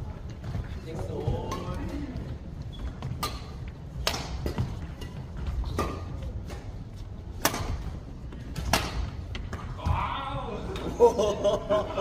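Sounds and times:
low rumble of large hall: 0.0 - 12.0
rackets striking shuttlecock: 3.0 - 9.8.

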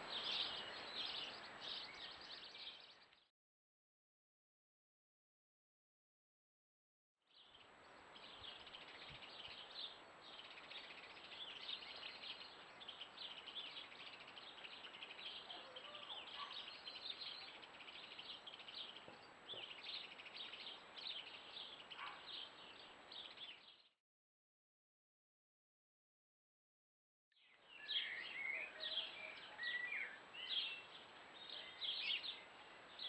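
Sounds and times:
songbirds twittering: 0.0 - 3.3, 7.3 - 24.0, 27.3 - 33.0.

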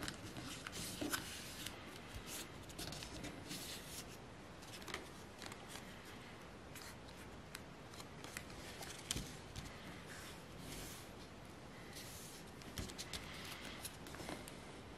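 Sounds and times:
paper rustling and crackling: 6.8 - 11.0.

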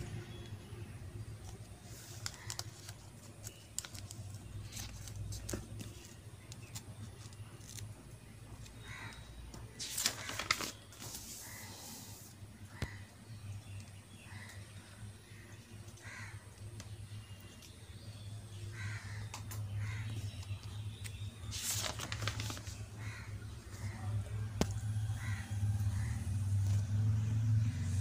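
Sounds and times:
paper pages rustling: 1.4 - 7.9, 9.1 - 11.7, 21.1 - 23.9.

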